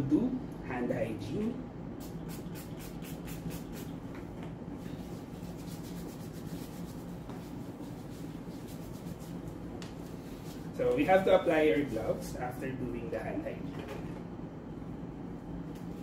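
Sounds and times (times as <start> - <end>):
hands rubbing together: 2.0 - 4.0, 4.9 - 10.7.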